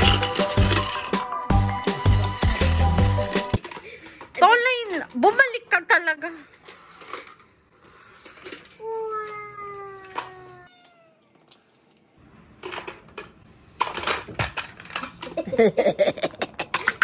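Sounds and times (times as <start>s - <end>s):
plastic toy cars clacking: 0.0s - 5.7s, 6.5s - 10.6s, 11.4s - 15.6s, 16.3s - 17.0s
toddler saying woah: 8.8s - 10.7s
toddler babbling: 8.8s - 11.2s.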